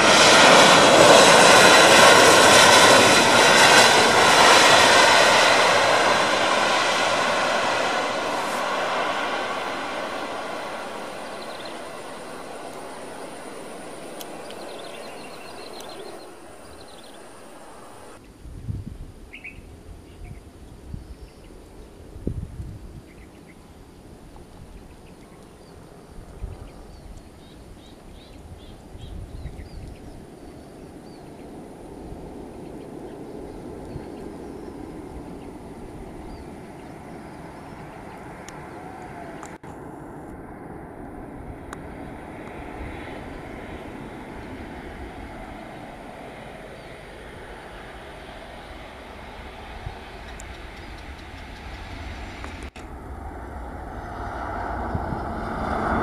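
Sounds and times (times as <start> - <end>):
distant jet engines rumbling: 0.0 - 18.3, 22.8 - 56.0
wind buffeting microphone: 0.0 - 56.0
birds chirping: 2.0 - 18.4, 32.5 - 39.6, 43.0 - 52.2.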